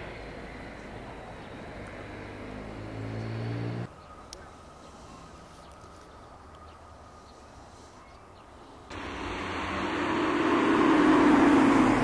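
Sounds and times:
passing motor vehicle rush: 0.0 - 3.9, 8.9 - 12.0
faint background noise: 0.0 - 12.0.

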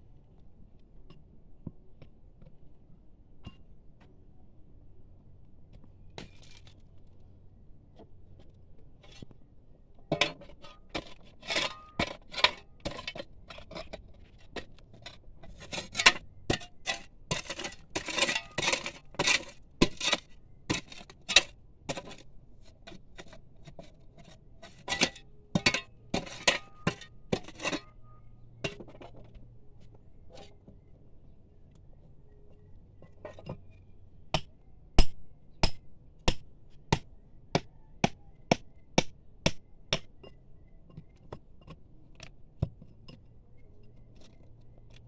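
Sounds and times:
hammer striking steel chisel: 34.3 - 40.1.

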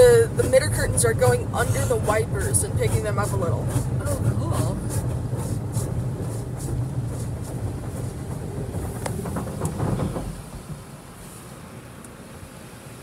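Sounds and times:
low rumble with ticks: 0.0 - 11.0
car wash brushes spinning: 0.0 - 12.3
hiss: 8.9 - 11.9.

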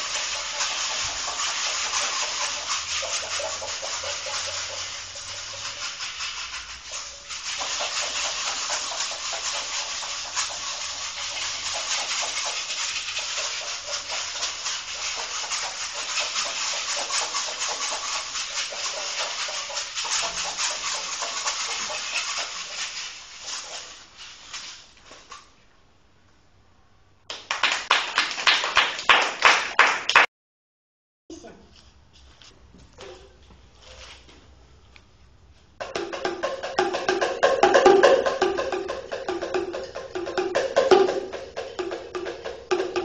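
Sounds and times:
rapid scratching and rustling: 0.0 - 25.5.

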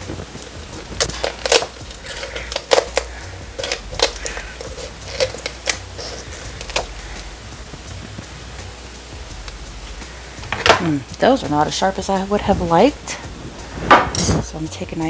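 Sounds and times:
poultry shears snapping bones: 0.4 - 6.9.

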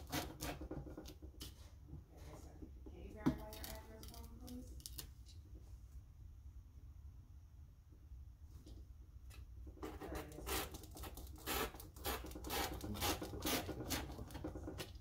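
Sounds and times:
rotary cutter slicing paper: 0.0 - 0.7, 10.2 - 14.4.

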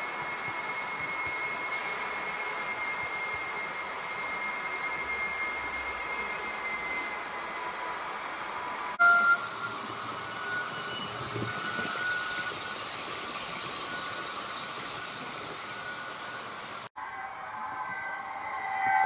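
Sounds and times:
model trains running: 0.0 - 16.9
brief loud tone: 9.0 - 12.5.

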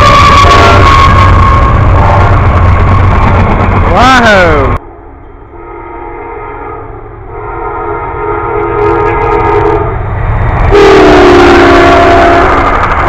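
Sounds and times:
locomotive air horn chord: 0.0 - 2.4, 5.5 - 10.0, 10.7 - 12.7
train low rumble: 0.0 - 13.0.

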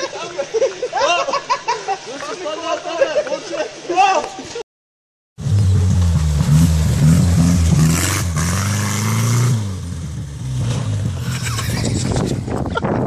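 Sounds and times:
car engine revving: 5.4 - 12.1.

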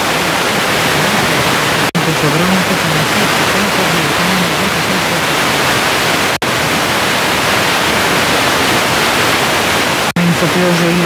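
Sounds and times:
faint radio voice: 0.0 - 5.7
radio static hiss: 0.0 - 11.0.

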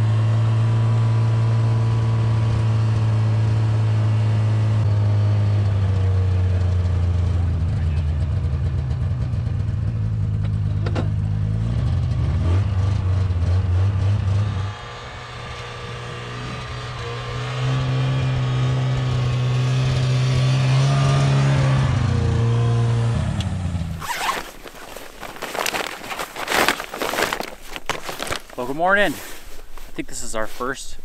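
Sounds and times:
snowmobile engine running: 5.6 - 31.0
clothing rustling and zipping: 23.8 - 31.0.

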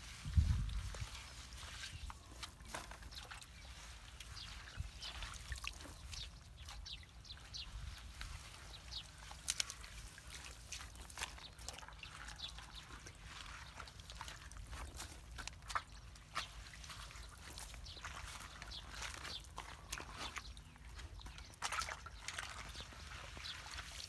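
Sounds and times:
pine needles and sticks rustling: 0.0 - 6.1, 7.7 - 20.4
small water splashes: 0.0 - 24.0.

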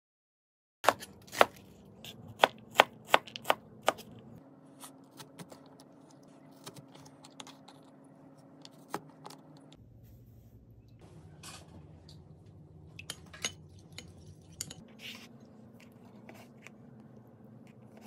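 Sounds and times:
knife chopping on cutting board: 0.8 - 4.1.

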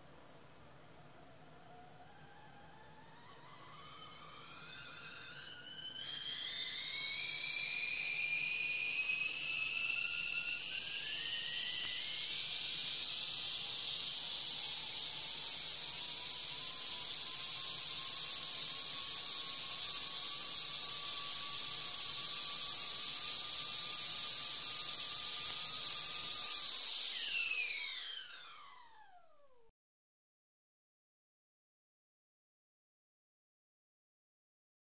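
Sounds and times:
kettle whistling: 1.7 - 29.6
steam hissing: 3.6 - 28.2.

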